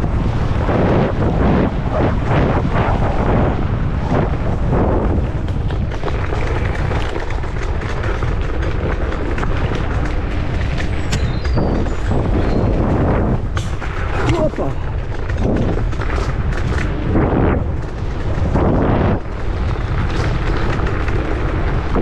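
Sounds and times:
wind buffeting microphone: 0.0 - 22.0
scooter rattling and knocking: 5.2 - 22.0.

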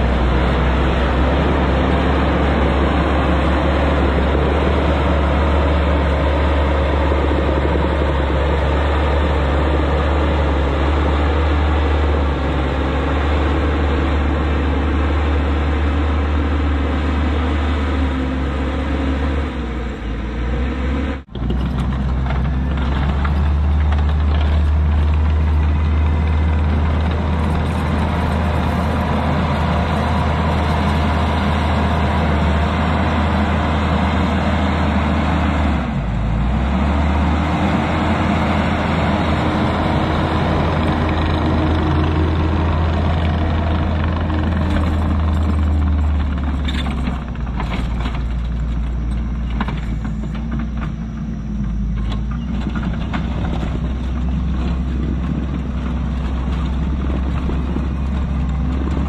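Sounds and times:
loader diesel engine running: 0.0 - 59.0.

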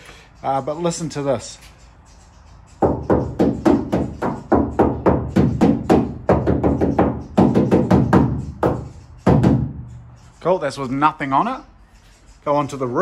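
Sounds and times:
hand knocking on hollow steel panel: 2.8 - 9.8.

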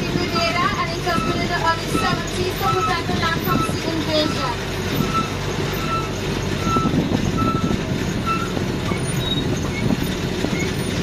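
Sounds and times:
engine rumble: 0.0 - 11.0
wagons rattling: 0.0 - 11.0
short high squeak: 4.3 - 11.0.

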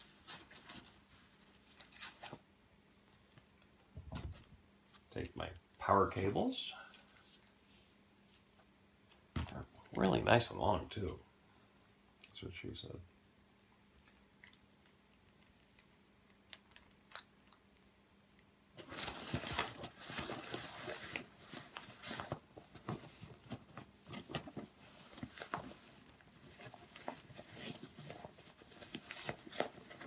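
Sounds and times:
cables rustling in fabric case: 18.8 - 30.0.

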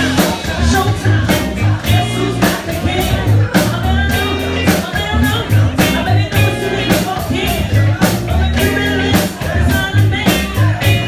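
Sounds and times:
drum beat: 0.0 - 11.0
live band playing: 0.0 - 11.0
person singing: 0.0 - 11.0.

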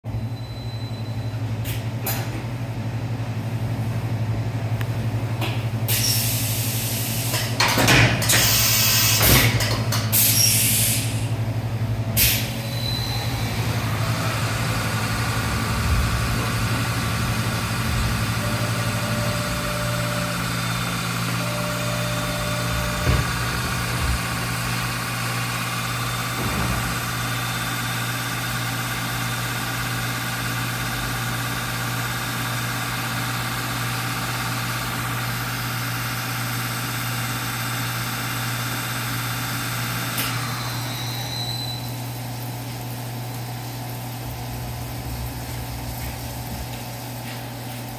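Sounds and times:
high machine whine: 5.9 - 42.2
milling machine hum: 6.0 - 47.9.

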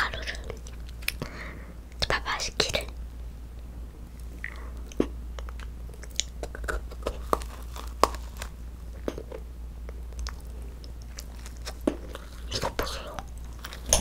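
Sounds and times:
crunchy chewing: 4.2 - 9.3, 9.9 - 14.0.

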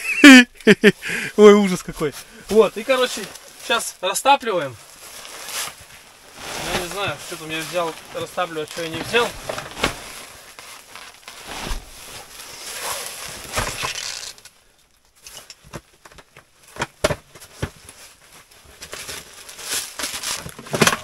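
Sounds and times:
fabric bag rustling: 2.5 - 3.9, 4.8 - 14.3
items clicking and knocking: 20.0 - 21.0.

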